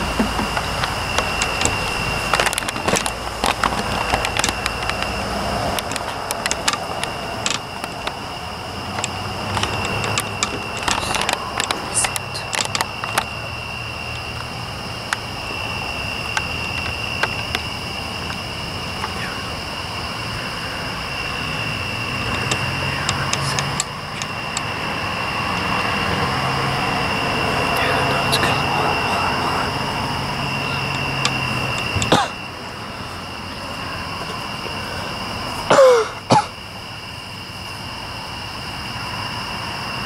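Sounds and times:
sharp clicks: 0.0s - 13.4s, 14.2s - 19.2s, 22.1s - 24.8s
high-pitched drone: 0.0s - 36.6s.

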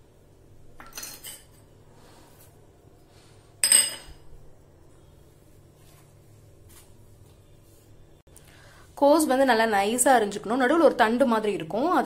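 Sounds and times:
metal bowls clinking and scraping: 0.8s - 1.7s, 3.6s - 4.3s.

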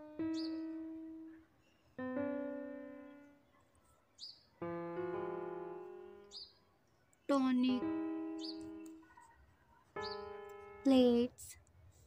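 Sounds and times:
slow piano notes: 0.0s - 3.4s, 4.6s - 6.5s, 7.4s - 9.1s, 10.0s - 11.2s.

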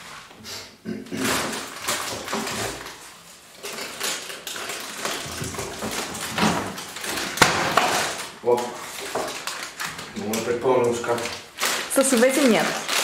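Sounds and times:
packets rustling: 1.2s - 13.0s
containers knocking and clinking: 3.6s - 13.0s.

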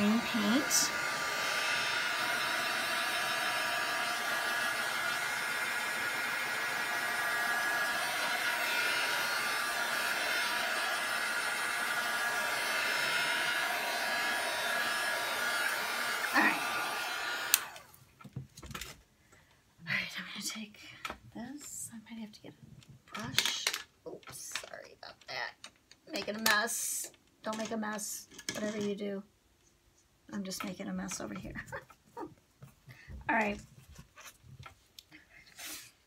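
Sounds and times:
hair dryer blowing: 0.0s - 18.0s
hair dryer switch click: 17.4s - 17.8s.

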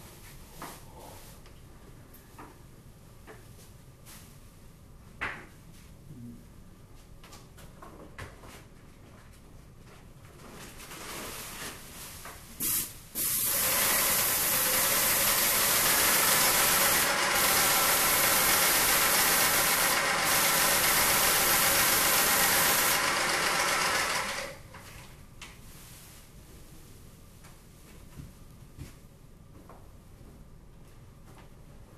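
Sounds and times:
sprayer hissing: 12.6s - 24.6s.

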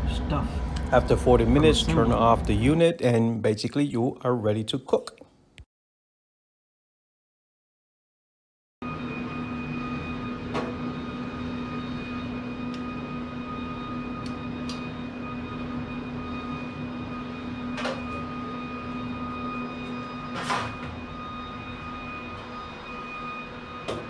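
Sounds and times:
smoker fan humming: 0.0s - 2.9s, 8.9s - 24.0s.

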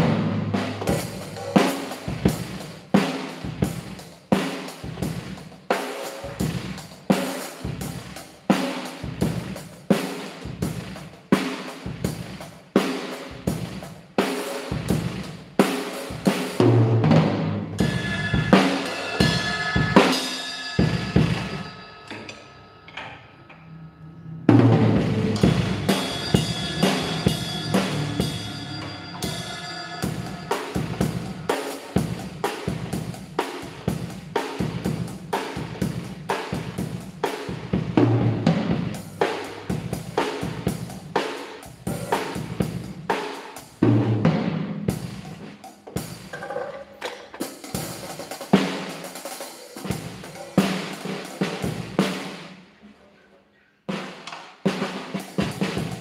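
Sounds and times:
drum kit playing: 0.0s - 23.6s, 24.5s - 46.6s, 47.3s - 52.8s, 53.9s - 56.0s
cymbal crashes: 17.8s - 35.1s.

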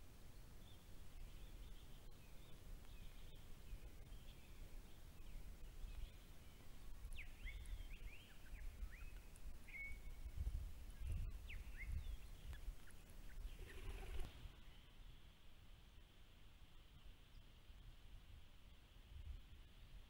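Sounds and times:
wind rumble on microphone: 0.6s - 14.6s, 19.0s - 20.0s
birds whistling calls: 11.0s - 14.8s.

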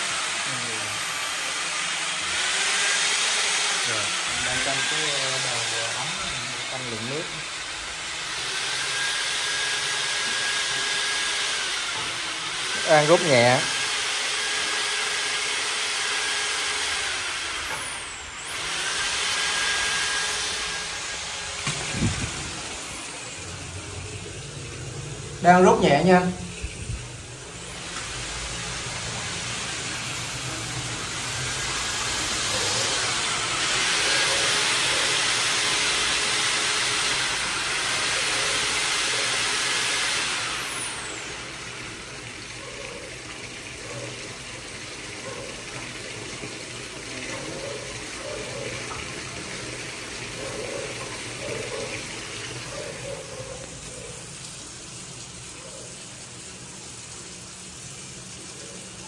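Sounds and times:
sink drain draining: 0.0s - 59.0s
water gushing into plastic bucket: 0.1s - 59.0s
tap water running into sink: 16.9s - 59.0s.

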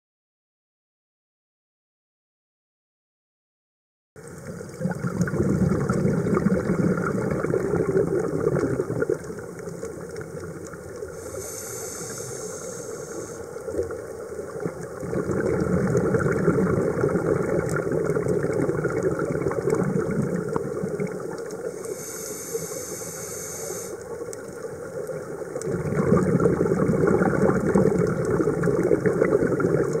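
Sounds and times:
bubbling exhalation: 4.5s - 9.5s, 14.6s - 22.2s, 25.6s - 30.0s
regulator inhalation hiss: 11.1s - 13.8s, 21.6s - 24.2s.

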